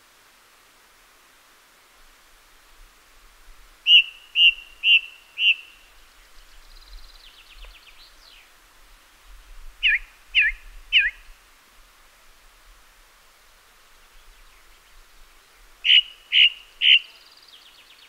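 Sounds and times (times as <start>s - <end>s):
song thrush singing: 3.8s - 8.6s, 9.8s - 11.4s, 14.0s - 18.0s.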